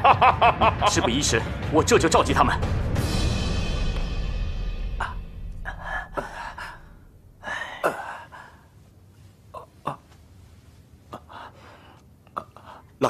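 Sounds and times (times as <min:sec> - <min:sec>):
music: 0:00.0 - 0:07.8
man gasping in pain: 0:05.0 - 0:08.7.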